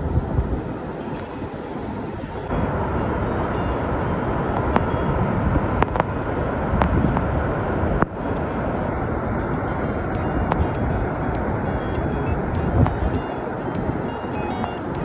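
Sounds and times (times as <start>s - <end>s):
faint sharp ticks: 10.1s - 15.0s.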